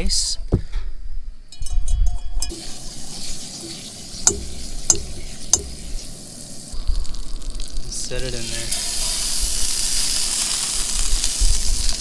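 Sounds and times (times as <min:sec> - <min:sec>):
sizzling in hot pan: 0:02.4 - 0:12.0.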